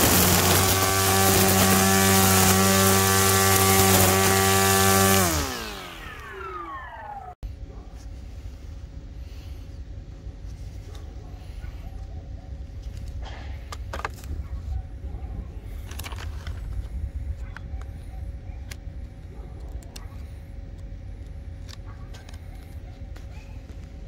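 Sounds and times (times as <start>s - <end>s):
steady low rumble: 7.4s - 24.0s.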